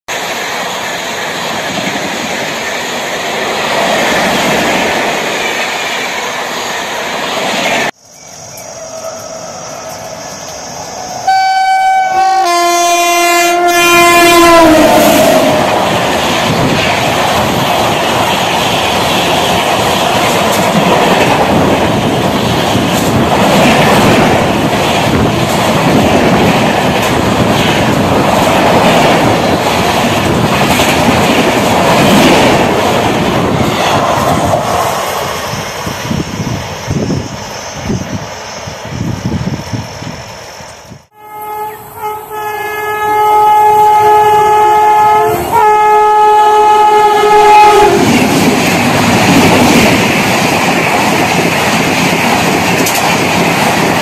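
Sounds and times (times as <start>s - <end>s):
train coaches rumbling past: 0.1s - 54.0s
locomotive horn blasts: 11.2s - 15.6s, 41.1s - 48.1s
wheels clacking over rail joints: 48.0s - 54.0s.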